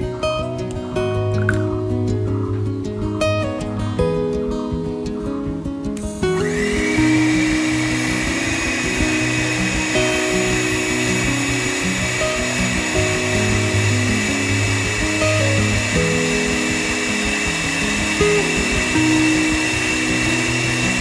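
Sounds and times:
background music: 0.0s - 21.0s
small electric motor whining: 6.0s - 21.0s.

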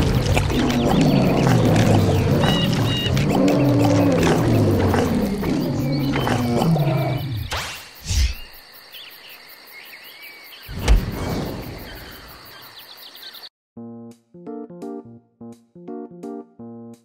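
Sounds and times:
insects chirring: 0.0s - 13.5s
low thud: 10.7s - 11.3s
piano music: 13.8s - 17.0s.

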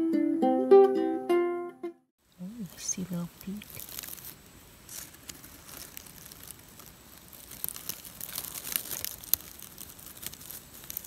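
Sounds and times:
dry grass and leaves rustling: 2.2s - 11.0s.

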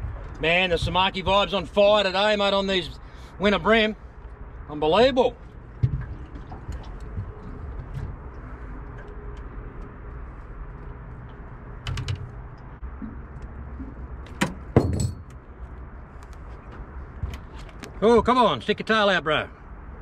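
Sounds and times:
sharp knocks: 14.3s - 15.4s.

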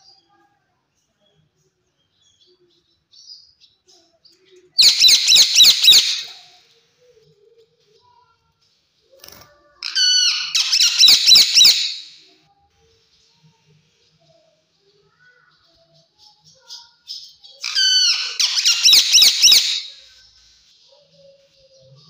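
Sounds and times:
parakeet high-pitched calls: 4.8s - 6.5s, 9.8s - 12.3s, 17.6s - 20.2s.

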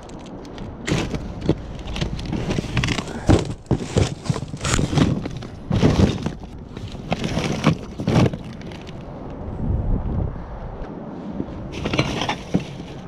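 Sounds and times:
rustling: 0.0s - 9.2s, 11.7s - 13.0s
kitchen items clattering: 0.9s - 9.0s, 11.8s - 13.0s.

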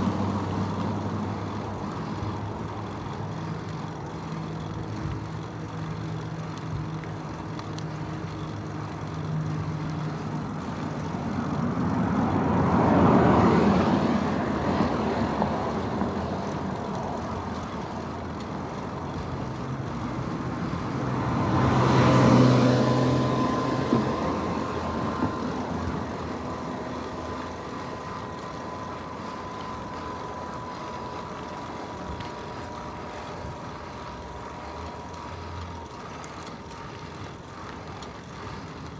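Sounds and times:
motor vehicles passing: 0.0s - 38.9s
background rumble: 23.3s - 38.9s.

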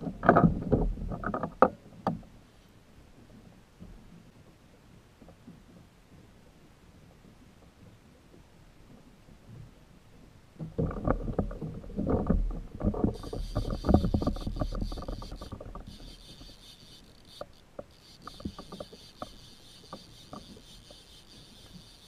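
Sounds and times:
fishing reel whirring: 13.0s - 22.0s.

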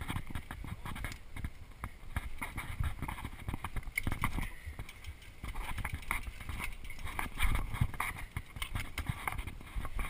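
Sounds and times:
mountain bike rattling on dirt: 0.0s - 10.0s.

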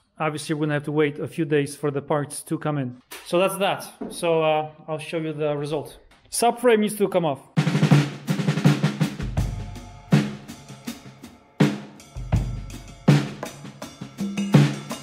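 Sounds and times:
drum kit beat: 7.6s - 15.0s.

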